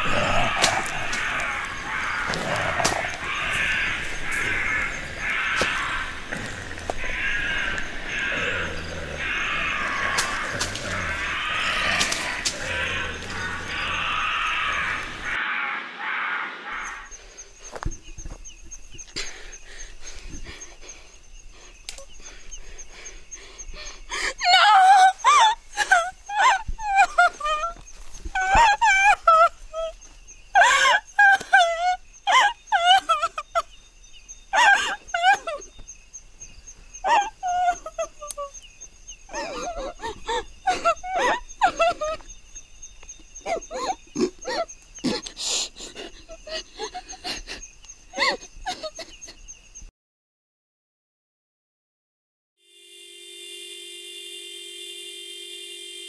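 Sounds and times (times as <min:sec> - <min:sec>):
woman wailing and sobbing: 0:23.8 - 0:30.0, 0:30.6 - 0:33.7, 0:34.6 - 0:35.7, 0:37.1 - 0:38.5, 0:39.3 - 0:42.3, 0:43.4 - 0:49.3.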